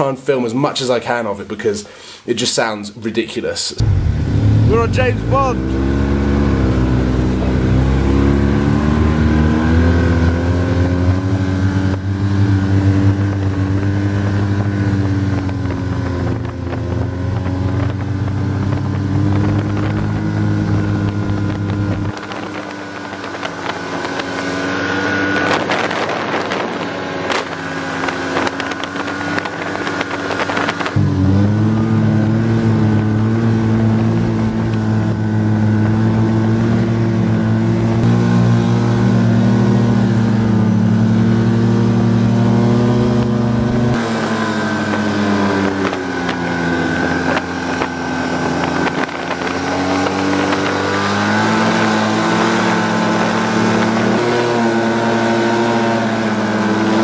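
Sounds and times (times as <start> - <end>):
rush of noise: 3.8 - 9.5
snowmobile engine running: 3.8 - 57.0.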